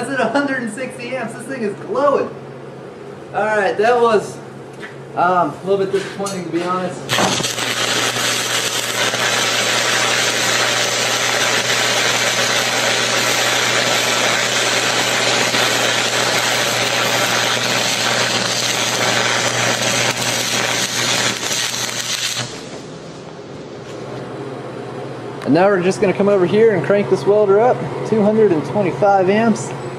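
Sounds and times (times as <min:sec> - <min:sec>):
welding arc crackling and hissing: 0:06.3 - 0:24.0.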